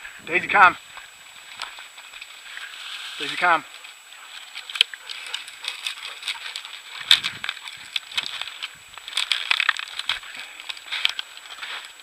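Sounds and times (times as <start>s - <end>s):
footsteps crunching through weeds: 0.0s - 12.0s
stems crackling against clothing: 0.9s - 12.0s.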